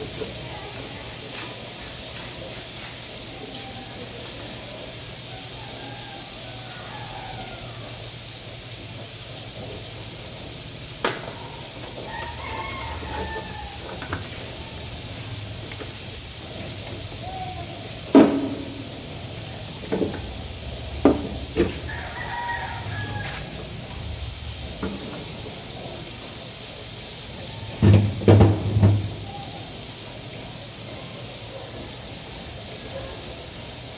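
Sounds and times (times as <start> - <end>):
rooster crowing: 5.1 - 8.4, 11.3 - 15.4, 20.2 - 24.4.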